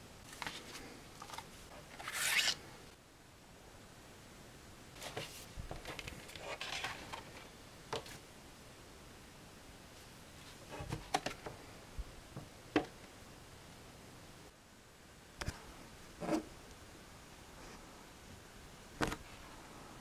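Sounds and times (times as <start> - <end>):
paper rustling: 0.3 - 2.6, 5.0 - 8.2.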